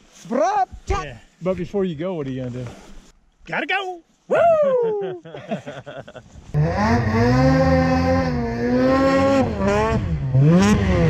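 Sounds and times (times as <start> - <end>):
snowmobile engine at high revs: 6.5 - 11.0.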